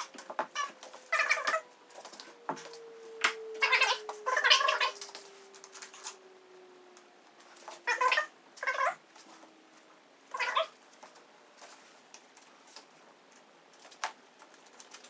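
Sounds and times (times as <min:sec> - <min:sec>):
cat meowing: 0:10.3 - 0:10.7.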